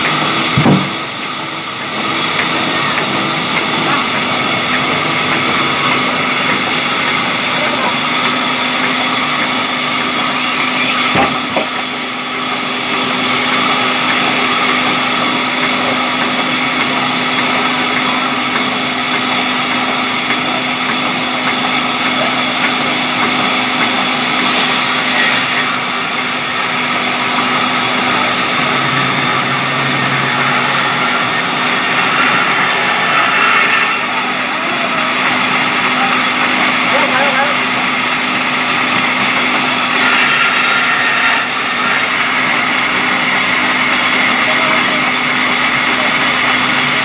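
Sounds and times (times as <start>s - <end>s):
band saw cutting wood: 0.0s - 47.0s
sharp knock: 0.6s - 1.0s.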